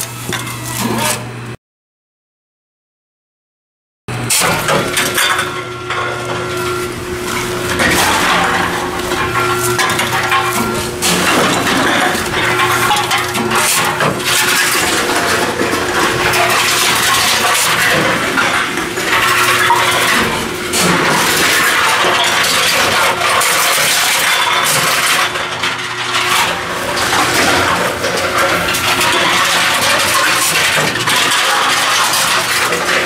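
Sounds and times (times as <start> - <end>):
machine motor hum: 4.1 - 23.4
cans clattering and clinking: 4.3 - 33.0.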